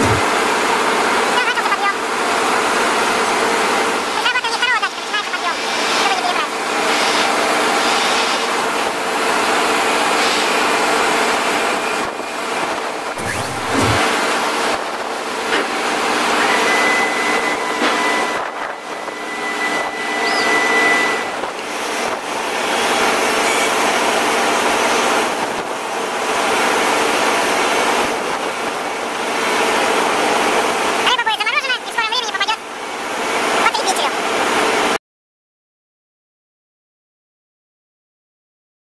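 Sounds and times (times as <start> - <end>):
machinery drone: 0.0 - 1.7, 13.1 - 14.5
thin high whine: 13.2 - 14.2.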